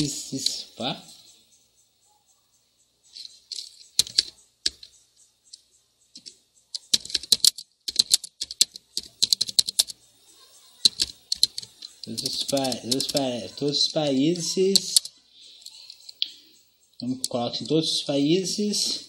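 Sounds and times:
typing on computer keyboard: 3.5 - 5.0, 6.2 - 10.0, 10.8 - 13.4, 14.0 - 16.2.

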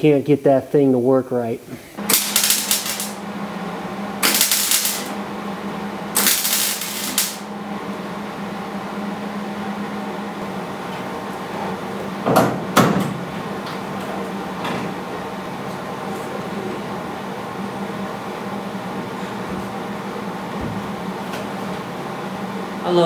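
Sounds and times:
low welder hum: 1.7 - 23.0
welding arc crackle: 2.0 - 7.5.

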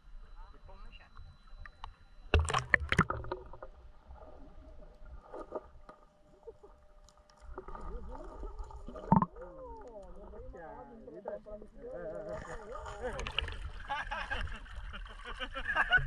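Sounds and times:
water splashing and sloshing: 2.3 - 10.7, 12.0 - 15.8.

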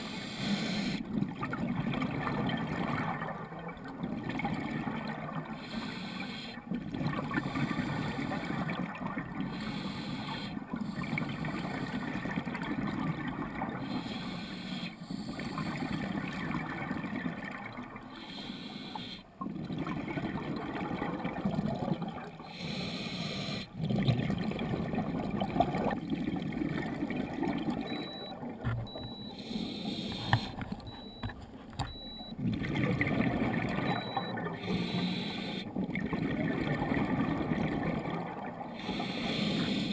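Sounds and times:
diver's regulator bubbles underwater: 0.0 - 39.9.

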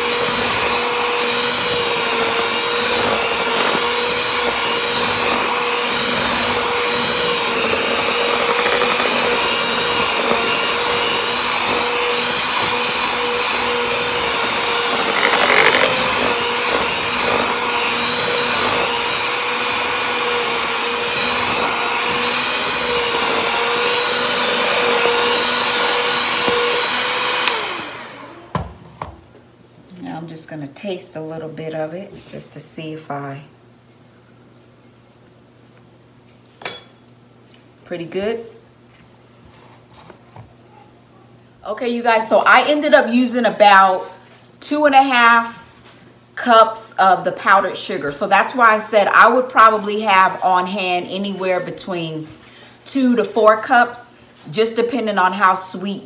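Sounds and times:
electric hand mixer whirring: 0.0 - 28.7.

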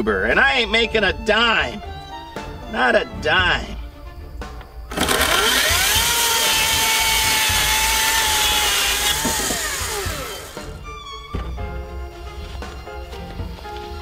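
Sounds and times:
electric chainsaw cutting wood: 4.9 - 10.8.

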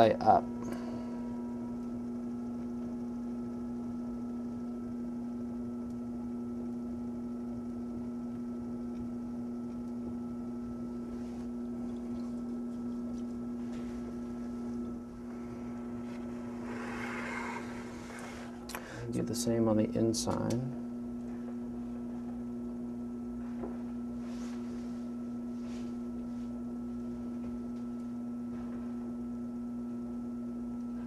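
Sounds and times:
potter's wheel motor humming: 0.0 - 31.0
hands rubbing wet clay: 11.0 - 18.6.

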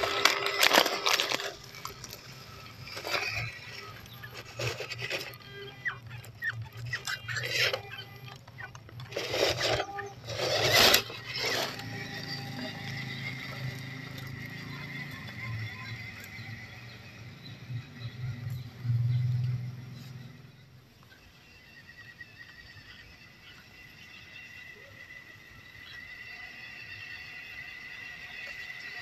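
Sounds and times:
tyres crushing dry leaves: 0.0 - 17.3
small electric motor whine: 0.0 - 29.0.

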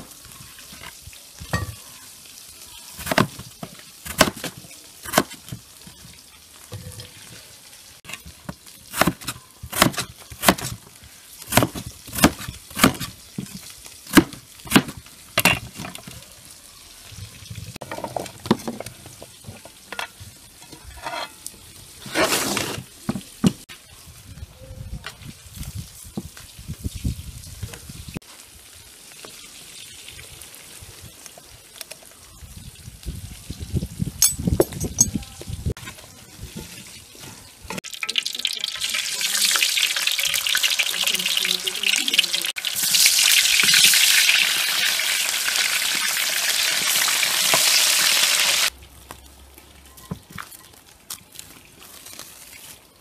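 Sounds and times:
knife chopping potatoes on board: 4.1 - 5.4, 8.9 - 10.8, 11.5 - 13.1, 14.1 - 15.0.

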